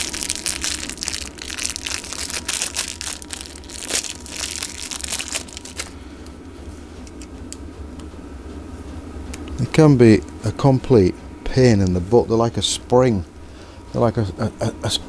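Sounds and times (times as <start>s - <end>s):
gloved hands crinkling: 0.0s - 6.4s.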